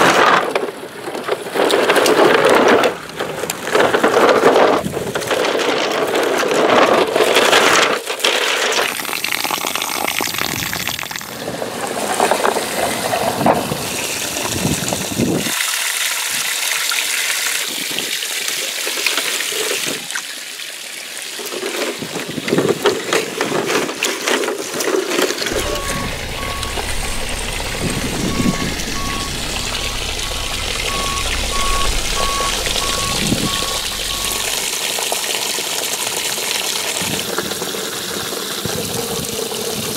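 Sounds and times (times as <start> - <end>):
hose water spraying on wall: 8.0 - 20.0
short high beep: 25.5 - 34.7
steady low hum: 25.5 - 34.7.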